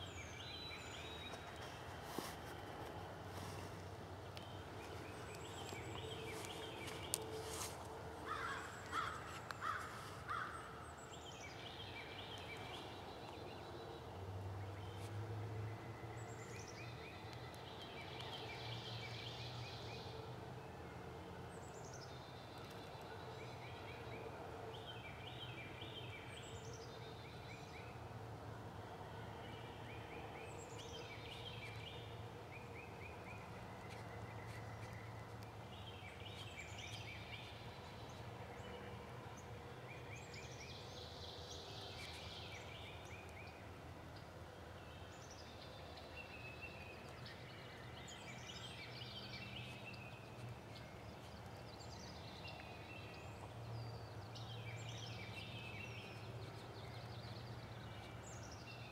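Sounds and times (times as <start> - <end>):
songbird chirping: 0.0 - 58.9.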